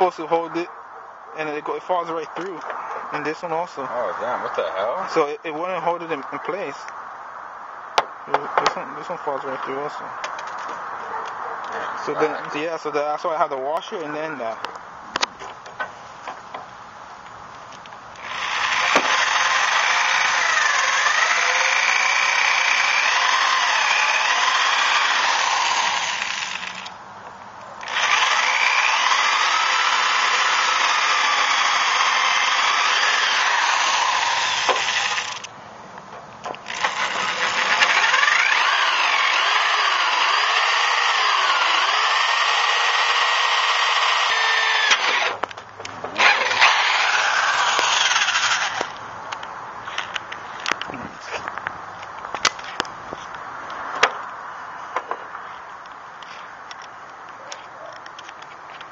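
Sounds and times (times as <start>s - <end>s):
electric drill grinding whine: 18.2s - 27.0s, 27.8s - 35.5s, 36.6s - 45.5s, 46.1s - 49.0s.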